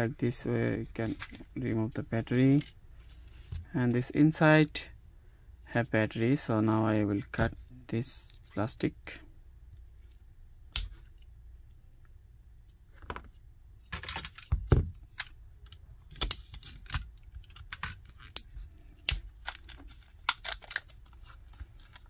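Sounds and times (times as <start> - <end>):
plastic wrap clicking and crackling: 15.1 - 22.0.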